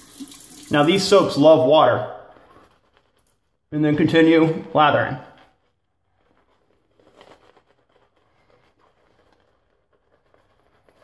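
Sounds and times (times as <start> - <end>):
shaving brush lathering soap: 0.0 - 3.4.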